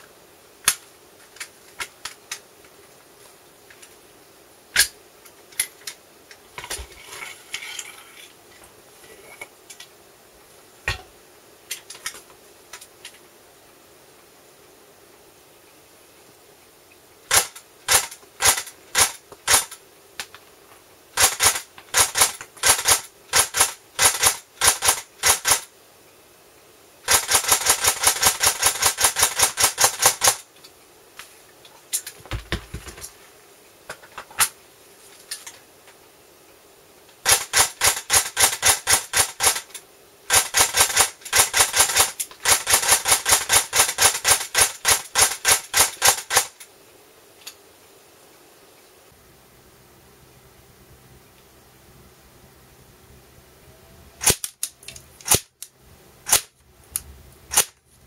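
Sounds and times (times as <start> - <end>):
airsoft gun firing clacks: 17.3 - 19.8, 21.2 - 25.7, 27.1 - 30.4, 37.2 - 39.7, 40.3 - 46.6.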